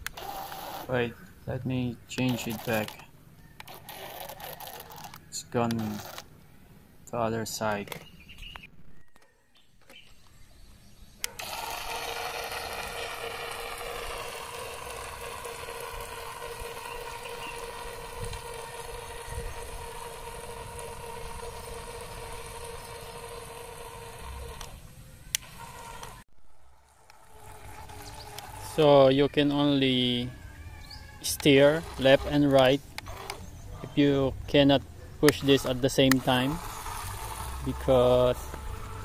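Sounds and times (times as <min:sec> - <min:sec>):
toy boat motor whine: 0:00.0 - 0:01.0, 0:02.3 - 0:03.0, 0:03.6 - 0:06.2, 0:11.2 - 0:26.2, 0:26.8 - 0:34.2, 0:35.3 - 0:39.0.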